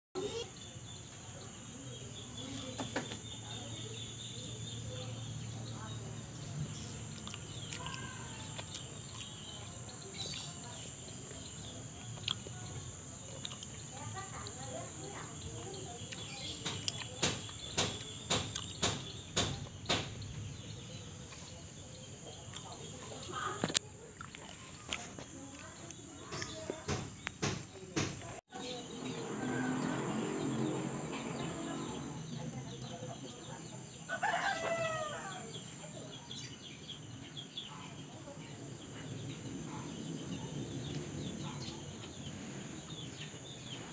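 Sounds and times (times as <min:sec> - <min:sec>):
birds chirping: 0:00.2 - 0:43.9
insects droning: 0:00.2 - 0:43.9
rooster crowing: 0:29.1 - 0:30.7, 0:34.0 - 0:35.6.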